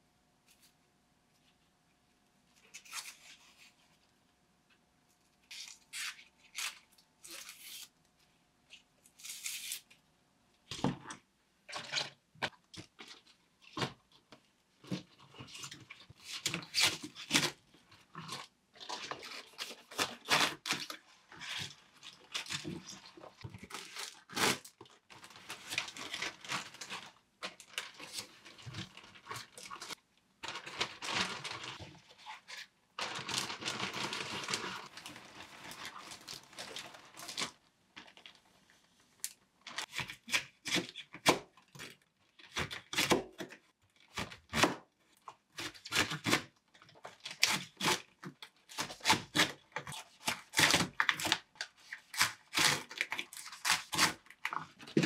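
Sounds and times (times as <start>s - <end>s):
onion skin tearing and rustling: 48.7s - 55.0s.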